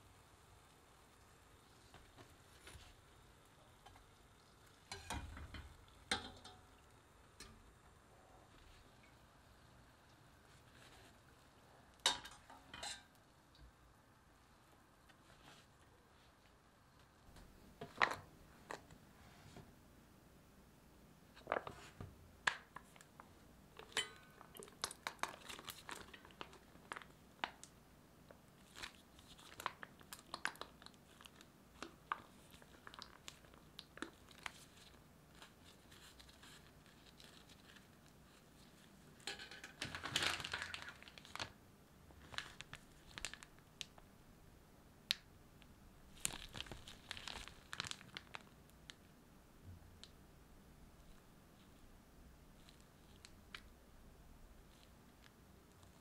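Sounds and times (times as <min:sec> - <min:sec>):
plastic crinkling and rustling: 0:21.4 - 0:27.7, 0:28.3 - 0:44.1, 0:46.1 - 0:49.1, 0:52.6 - 0:53.7, 0:54.6 - 0:56.0.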